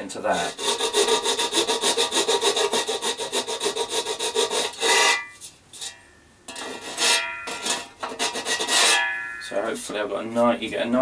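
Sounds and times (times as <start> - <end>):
file rasping on metal: 0.3 - 5.9, 6.5 - 9.0
metallic ring: 4.9 - 7.9, 8.7 - 9.8.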